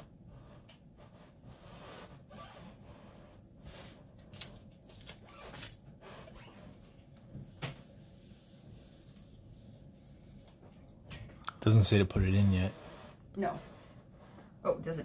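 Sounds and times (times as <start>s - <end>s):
fabric rubbing and rustling: 0.0s - 11.0s, 11.7s - 15.0s
iron sliding over fabric: 12.3s - 15.0s.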